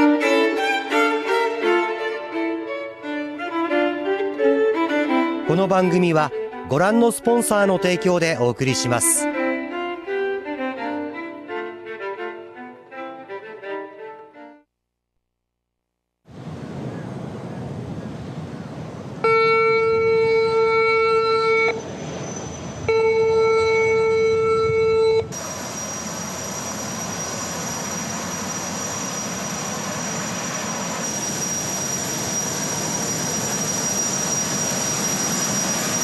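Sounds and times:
ferry engine rush with high whine: 0:16.3 - 0:36.0
ferry horn blasts: 0:19.2 - 0:21.8, 0:22.8 - 0:25.4.

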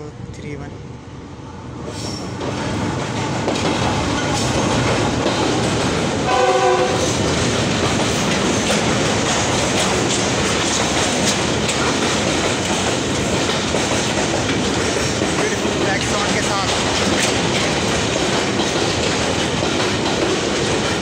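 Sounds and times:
diesel train passing at speed: 0:00.0 - 0:21.0
wheels clattering over rail joints: 0:02.4 - 0:21.0
locomotive horn blast: 0:06.3 - 0:07.2.

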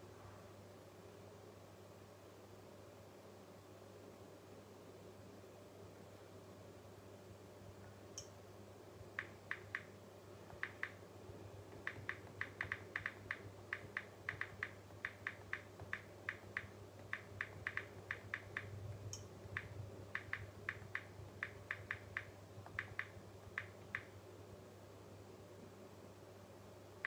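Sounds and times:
low electrical hum: 0:00.0 - 0:27.0
fingers tapping phone screen: 0:09.2 - 0:09.9, 0:10.5 - 0:11.0, 0:11.7 - 0:24.1.

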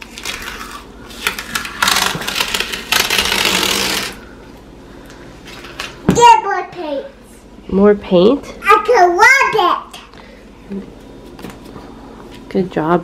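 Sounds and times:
tape crinkling: 0:00.0 - 0:04.2
tape ripping off: 0:00.0 - 0:04.2.

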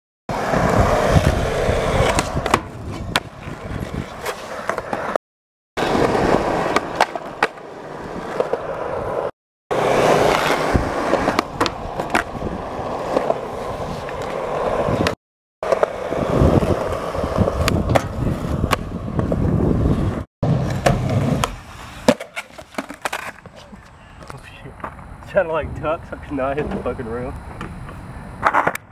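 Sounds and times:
skateboard wheels rolling on concrete: 0:00.3 - 0:05.2, 0:05.8 - 0:28.9
skateboard clacking on ground: 0:09.8 - 0:12.4, 0:17.6 - 0:18.9, 0:20.6 - 0:25.1, 0:26.6 - 0:28.9.

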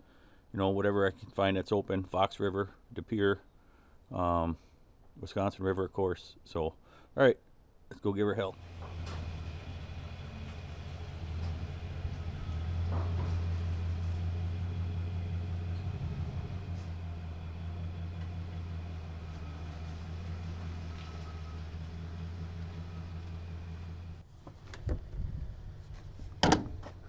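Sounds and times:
truck engine running at low revs: 0:08.5 - 0:27.0.

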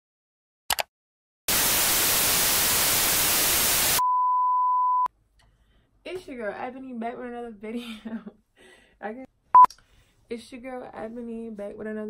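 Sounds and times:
television static hiss: 0:01.5 - 0:04.0
steady test-tone beep: 0:04.0 - 0:05.1.

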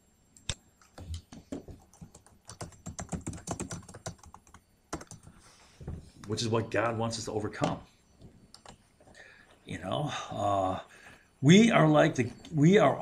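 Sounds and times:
typing on computer keyboard: 0:00.8 - 0:05.3, 0:08.5 - 0:08.8.

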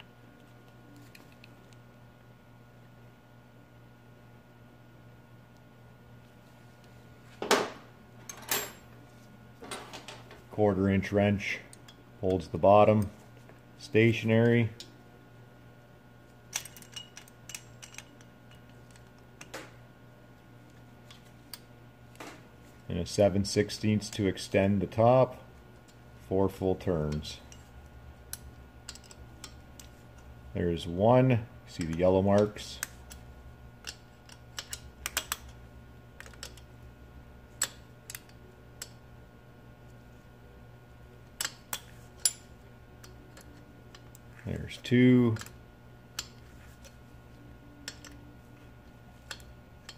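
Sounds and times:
steady low hum: 0:00.0 - 0:49.9
metal wrench clicks: 0:28.3 - 0:29.9, 0:33.8 - 0:35.6, 0:36.2 - 0:36.7, 0:41.4 - 0:42.4, 0:44.8 - 0:45.6, 0:46.2 - 0:46.4, 0:47.8 - 0:48.2, 0:49.3 - 0:49.9
wrench clicking on metal: 0:33.8 - 0:35.6, 0:47.8 - 0:48.2.

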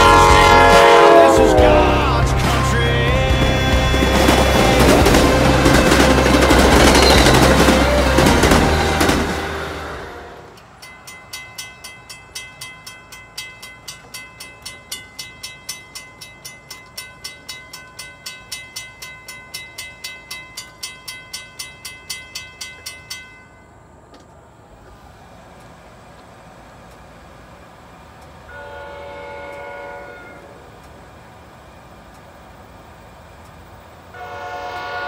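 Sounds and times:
crossing bell ringing: 0:00.0 - 0:24.1.

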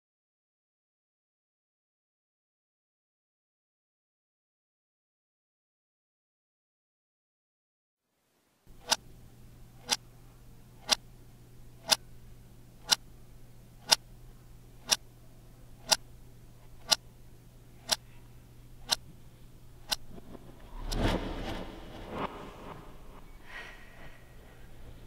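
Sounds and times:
low steady hum: 0:08.2 - 0:25.0
wall clock ticking: 0:08.8 - 0:09.0, 0:09.8 - 0:10.0, 0:10.8 - 0:11.0, 0:11.8 - 0:12.1, 0:12.8 - 0:13.0, 0:13.8 - 0:14.0, 0:14.8 - 0:15.0, 0:15.8 - 0:16.1, 0:16.8 - 0:17.0, 0:17.8 - 0:18.0, 0:18.8 - 0:19.1, 0:19.8 - 0:20.1.

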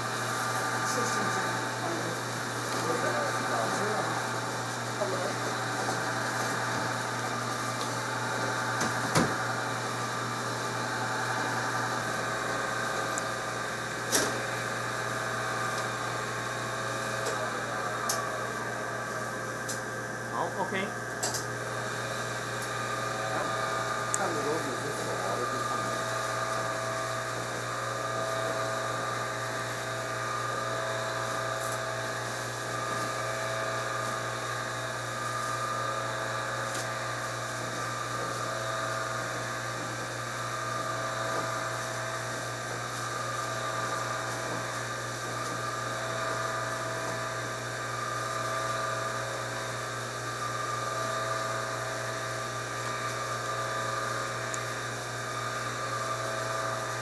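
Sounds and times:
electric motor whining: 0:00.0 - 0:19.2.

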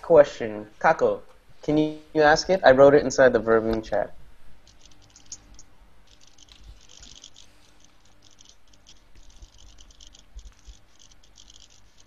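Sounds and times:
low hum: 0:04.0 - 0:12.0
scratchy crackles: 0:04.6 - 0:12.0.

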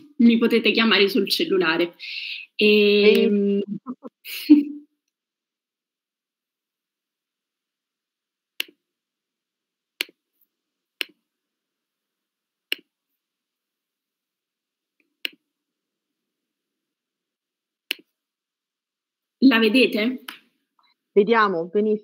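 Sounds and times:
computer mouse clicks: 0:08.6 - 0:08.8, 0:12.7 - 0:12.9, 0:17.9 - 0:18.2.

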